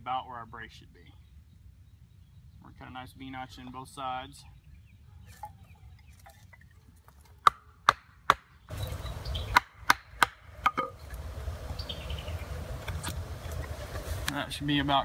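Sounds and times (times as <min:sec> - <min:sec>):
knife chopping into wood: 0:07.4 - 0:08.5
low rumbling noise: 0:10.4 - 0:14.3.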